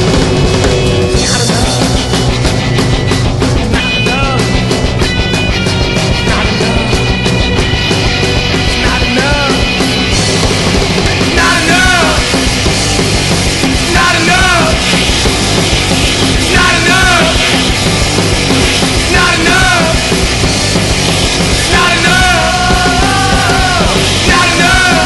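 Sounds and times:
punk rock band playing: 0.0s - 25.0s.

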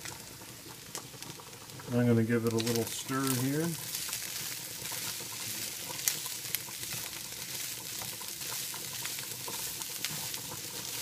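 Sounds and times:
food sizzling in a frying pan: 0.0s - 11.0s.

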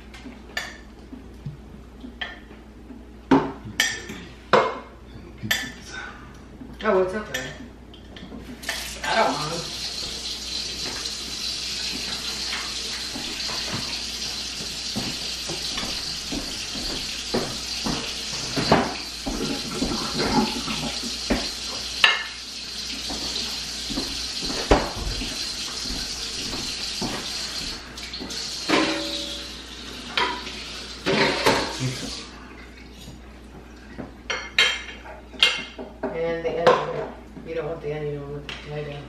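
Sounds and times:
dishes and pans clinking: 3.3s - 4.9s, 15.0s - 22.4s, 28.6s - 31.9s, 34.3s - 36.0s
tap running into sink: 11.8s - 22.4s, 23.0s - 29.4s.

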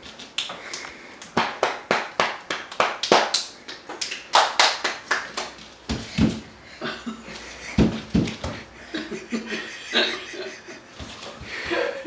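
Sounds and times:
hands clapping: 0.3s - 5.6s.

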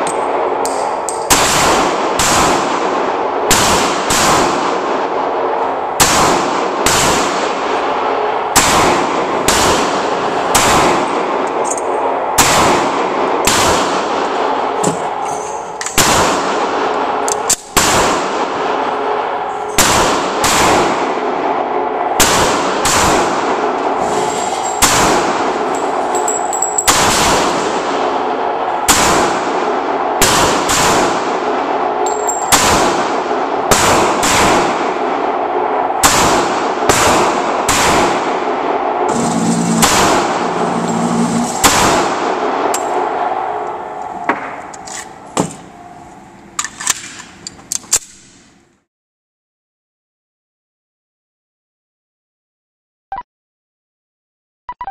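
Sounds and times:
handgun shots echoing: 0.0s - 4.9s, 6.0s - 7.8s, 8.5s - 18.3s, 22.2s - 23.7s, 24.8s - 28.2s, 28.9s - 35.0s, 36.0s - 40.6s, 41.5s - 43.1s, 46.6s - 48.5s.

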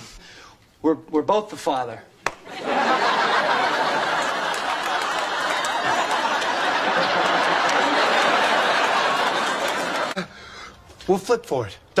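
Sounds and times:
studio audience laughing: 2.5s - 10.3s.

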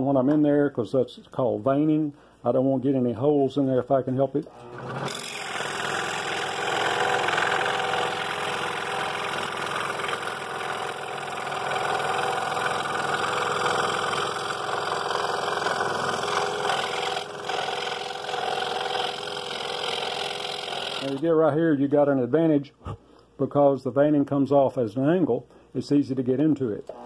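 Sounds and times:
scroll saw cutting wood: 4.4s - 21.2s.

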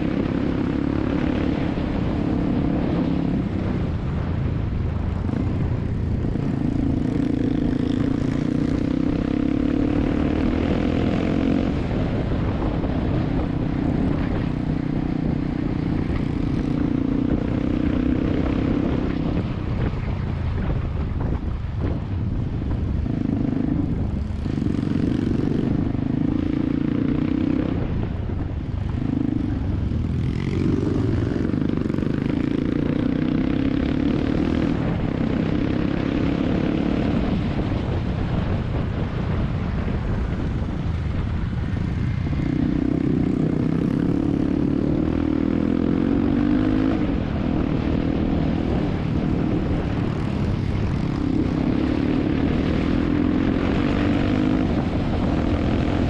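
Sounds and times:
motorcycle engine droning: 0.0s - 56.0s
wind noise on camera: 0.0s - 56.0s.

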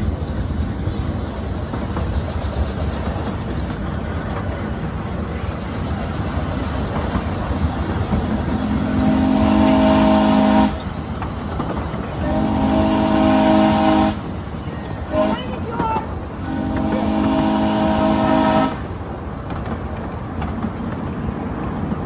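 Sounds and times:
scale steam train rumbling: 0.0s - 22.0s
steam locomotive chime whistle: 8.9s - 10.9s, 12.2s - 15.8s, 16.4s - 18.8s.

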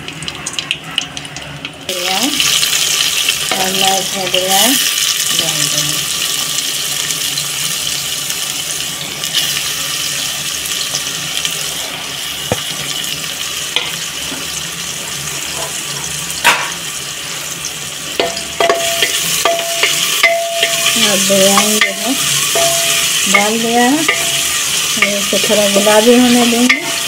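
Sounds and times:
onions sizzling in oil: 0.0s - 27.0s.

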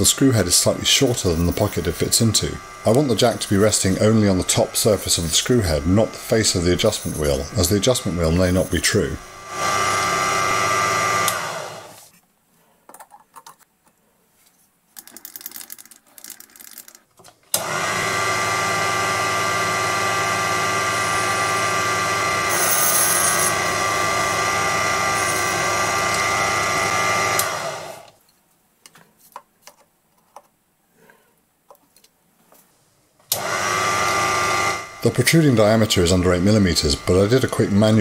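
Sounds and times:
lathe motor whine: 0.0s - 12.1s, 17.6s - 28.2s, 33.3s - 38.0s.

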